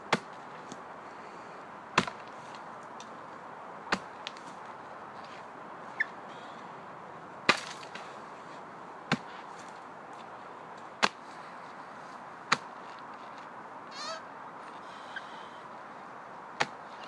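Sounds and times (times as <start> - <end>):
sword chopping into wood: 2.0 - 2.2, 7.5 - 8.0.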